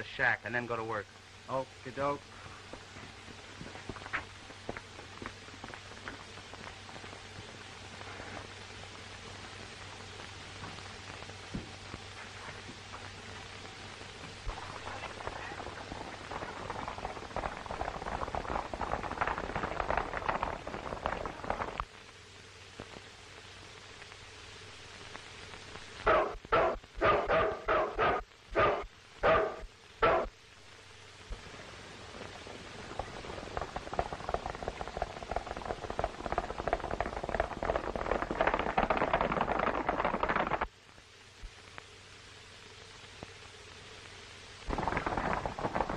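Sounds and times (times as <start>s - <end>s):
film soundtrack hiss: 0.0s - 45.9s
horses galloping hoofbeats: 2.0s - 21.9s, 32.2s - 40.7s, 44.7s - 45.9s.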